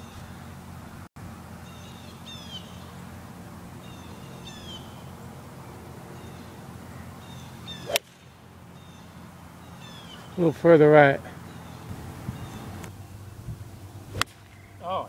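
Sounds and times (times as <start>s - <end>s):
descending bird chirps: 3.8s - 5.1s, 6.2s - 8.0s
golf club striking ball: 7.8s - 8.3s, 14.1s - 14.7s.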